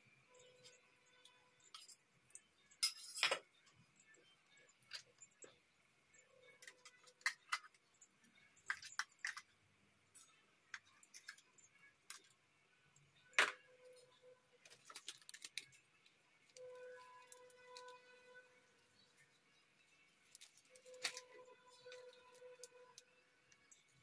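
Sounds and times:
steel dishes clinking: 2.7s - 3.4s.

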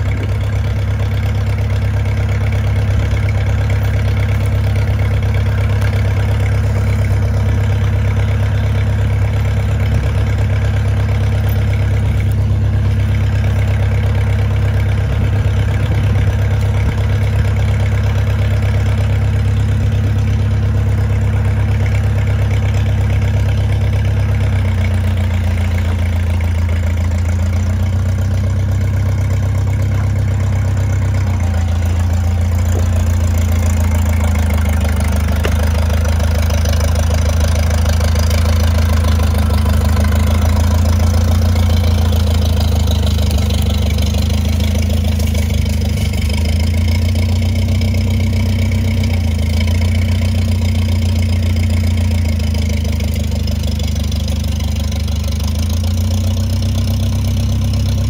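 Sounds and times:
old tractor engine idling: 0.0s - 58.0s.

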